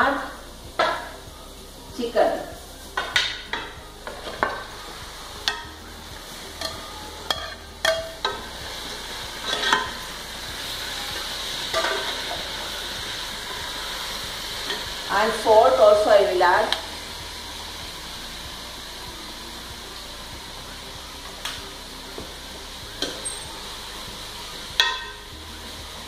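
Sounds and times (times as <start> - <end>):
chicken sizzling in pot: 0.0 - 26.0
ladle knocking and scraping pot: 3.0 - 4.7, 9.4 - 10.0, 11.7 - 12.5.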